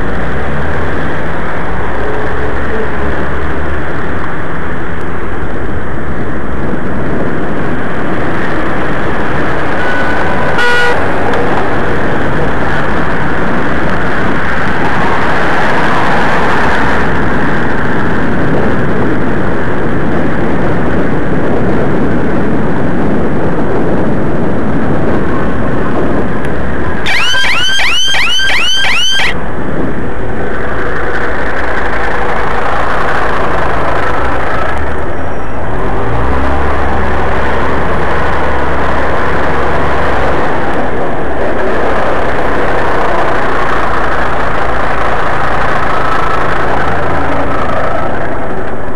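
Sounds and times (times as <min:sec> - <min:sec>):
wind noise on microphone: 0:00.0 - 0:48.9
rapid high chirps: 0:27.1 - 0:29.3.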